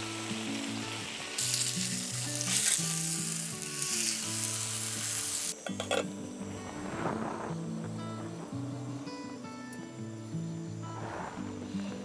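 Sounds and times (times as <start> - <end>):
meat sizzling on grill pan: 0.0 - 5.6
soft background music: 0.0 - 12.0.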